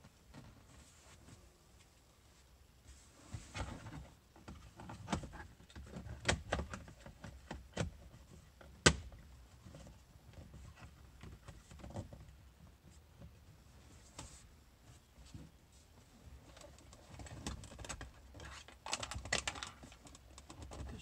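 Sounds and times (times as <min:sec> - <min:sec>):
plastic panel clicking and knocking: 0:18.7 - 0:20.9.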